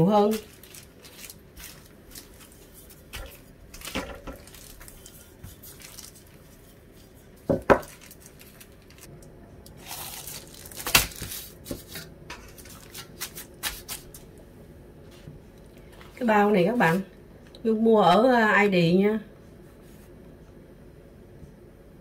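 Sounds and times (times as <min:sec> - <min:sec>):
plastic bag rustling and crinkling: 0:00.0 - 0:09.1, 0:09.8 - 0:14.3.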